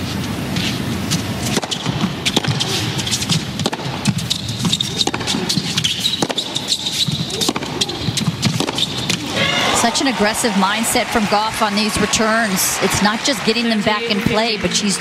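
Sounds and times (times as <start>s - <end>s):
racquet hitting tennis ball: 1.5s - 11.0s
crowd hubbub: 7.2s - 15.0s.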